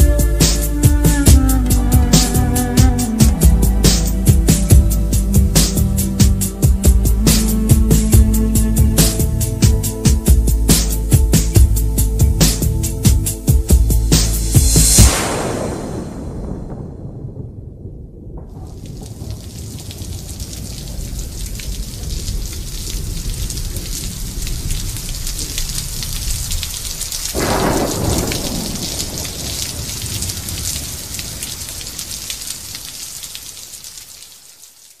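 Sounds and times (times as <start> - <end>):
heavy rain: 0.0 - 35.0
low rolling thunder: 11.6 - 32.9
loud thunderclap: 14.1 - 32.3.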